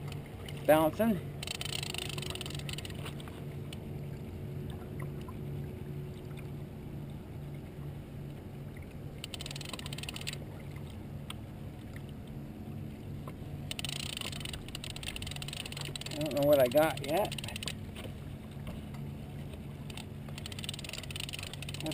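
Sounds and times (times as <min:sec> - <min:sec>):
fast ratchet-like clicking: 0:01.4 - 0:03.0, 0:09.2 - 0:10.4, 0:13.7 - 0:17.7, 0:19.9 - 0:21.9
fishing reel whirring: 0:01.4 - 0:03.1, 0:09.2 - 0:10.4, 0:13.7 - 0:17.8, 0:19.9 - 0:21.9.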